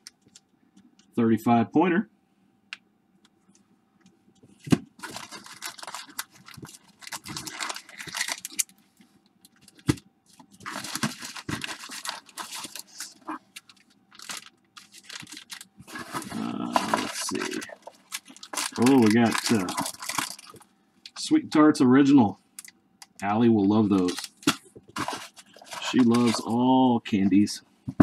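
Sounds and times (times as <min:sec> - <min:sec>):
packing peanuts rustling in a box: 0:05.0 - 0:08.7, 0:10.5 - 0:20.6, 0:23.7 - 0:27.6.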